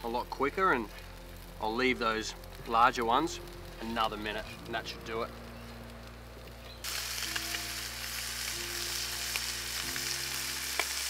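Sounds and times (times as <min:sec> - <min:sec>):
meat sizzling in a hot pan: 0:06.7 - 0:11.0.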